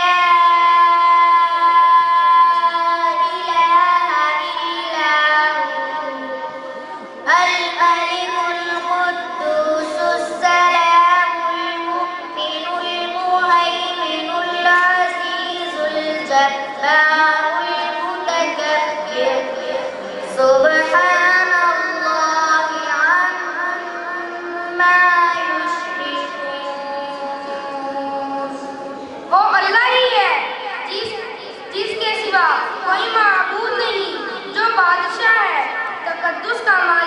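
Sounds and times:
boy chanting through a microphone: 0.0 - 37.0.

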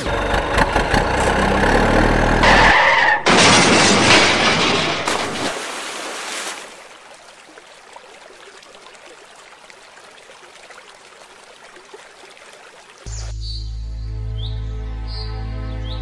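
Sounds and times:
water trickling and lapping: 5.1 - 13.3.

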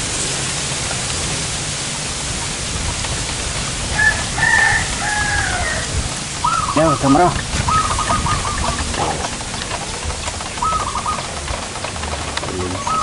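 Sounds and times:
outdoor background hiss: 0.0 - 13.0
rooster crowing: 3.9 - 6.8.

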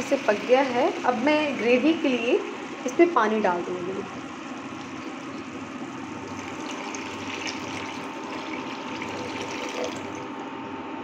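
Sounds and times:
water pouring into frying pan: 4.2 - 10.4.

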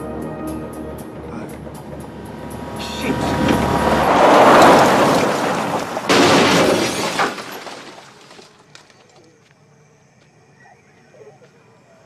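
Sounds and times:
car crash crunching metal: 2.6 - 8.7
glass shattering: 4.4 - 8.6.

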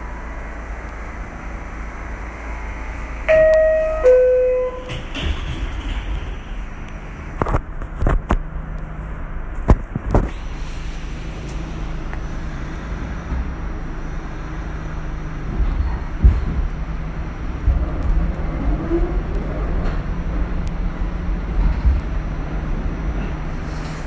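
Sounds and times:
subway car low hum: 0.0 - 24.0
two-tone descending door chime: 3.3 - 5.5.

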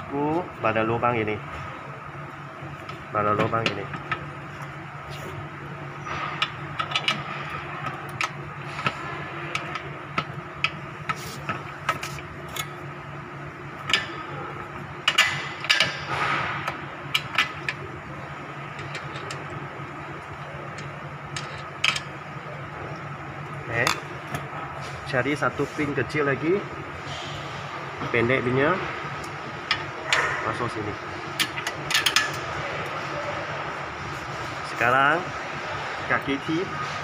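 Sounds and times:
steady background hum: 0.0 - 37.0.

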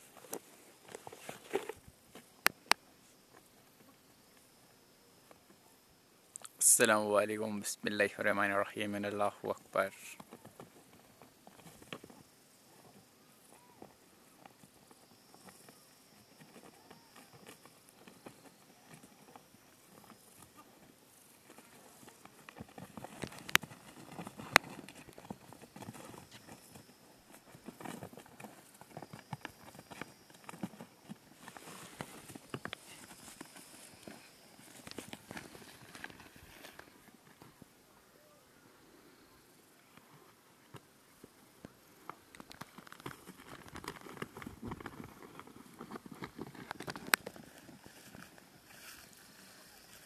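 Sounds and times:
hooves stamping on dry ground: 9.1 - 37.6, 42.1 - 50.0
bulls fighting knocks and scuffs: 10.0 - 37.8, 40.8 - 49.8.

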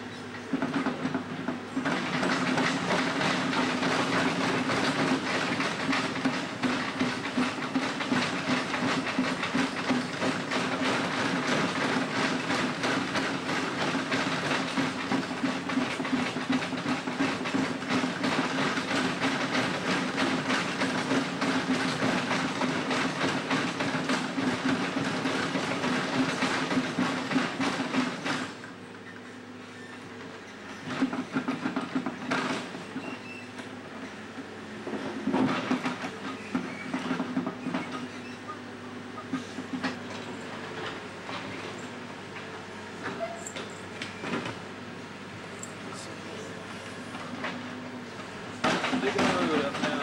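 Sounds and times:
rattling clatter of bucket on pavement: 0.4 - 28.9, 30.2 - 34.3, 34.9 - 44.8, 45.5 - 50.0.

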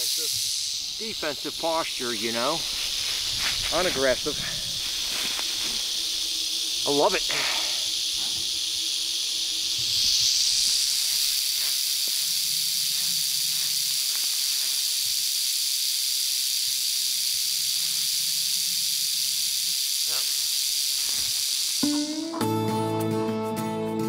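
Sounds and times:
rattlesnake tail rattling: 0.0 - 22.0.

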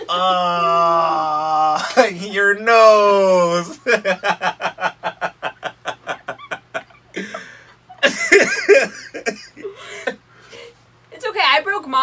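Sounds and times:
man and woman laughing: 3.5 - 10.2.

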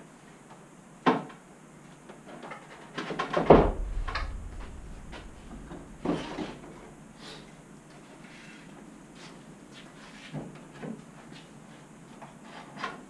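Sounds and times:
deep thud: 3.4 - 7.2.

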